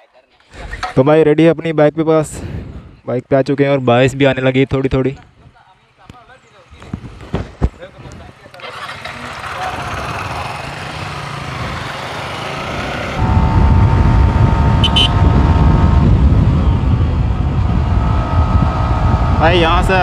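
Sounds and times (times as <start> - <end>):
motorcycle engine revving: 8.3 - 20.0
wind rumble on microphone: 13.2 - 20.0.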